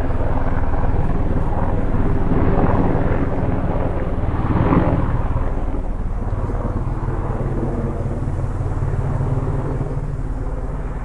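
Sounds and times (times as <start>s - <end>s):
helicopter flying: 0.0s - 11.0s.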